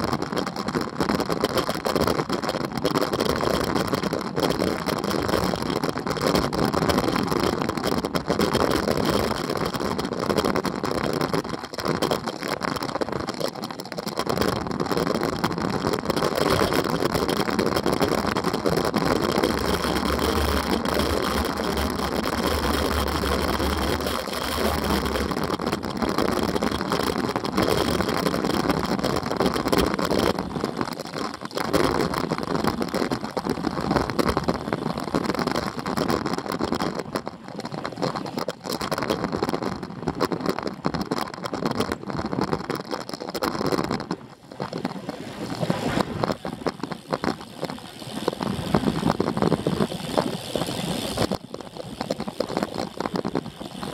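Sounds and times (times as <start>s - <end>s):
wind buffeting microphone: 14.2s - 53.9s.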